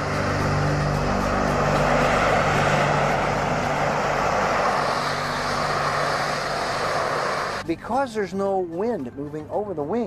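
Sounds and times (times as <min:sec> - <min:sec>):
jet engine hovering: 0:00.0 - 0:07.8.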